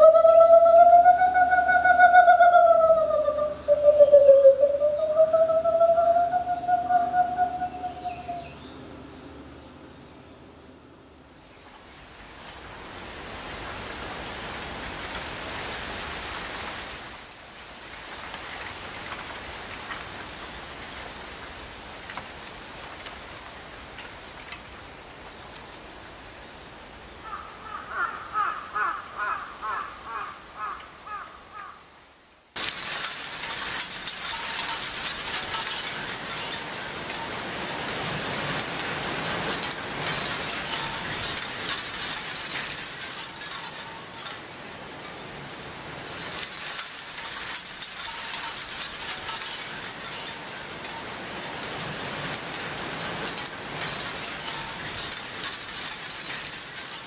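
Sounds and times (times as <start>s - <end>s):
wind in trees: 0.0s - 57.0s
crackling rustle with clicks: 11.4s - 25.8s, 32.5s - 57.0s.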